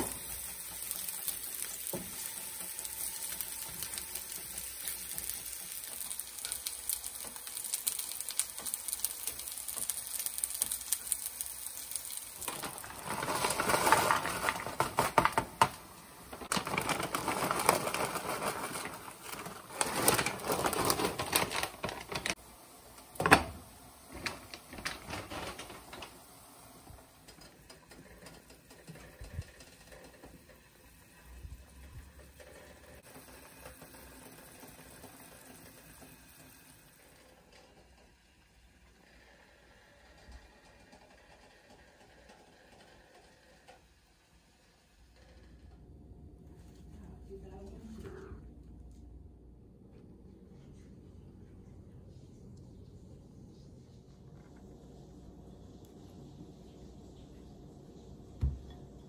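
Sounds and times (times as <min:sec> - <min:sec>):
kitchen tapping and clattering: 0:58.4 - 0:58.9.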